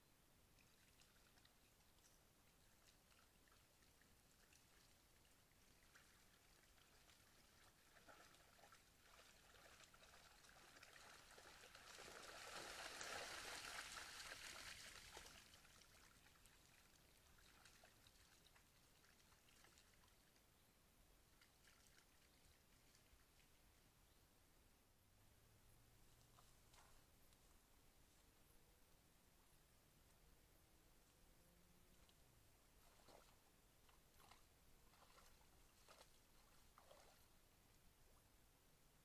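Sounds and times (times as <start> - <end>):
quiet crackling background: 0.0 - 39.0
water splashing and trickling: 0.5 - 20.5, 21.2 - 23.8, 31.8 - 37.4.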